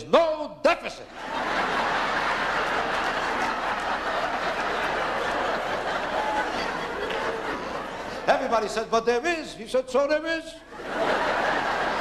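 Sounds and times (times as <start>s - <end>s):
audience laughing: 1.1s - 8.8s, 10.7s - 12.0s.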